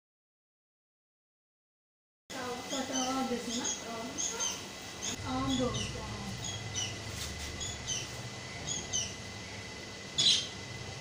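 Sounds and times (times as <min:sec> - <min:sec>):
faint steady hum: 0:02.3 - 0:11.0
small birds chirping: 0:02.6 - 0:09.3, 0:10.1 - 0:10.6.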